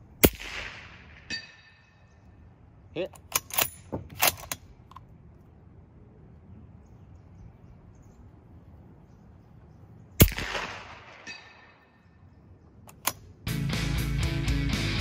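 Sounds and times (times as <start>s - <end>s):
suppressed rifle shot: 0.2s - 1.4s, 10.2s - 11.7s.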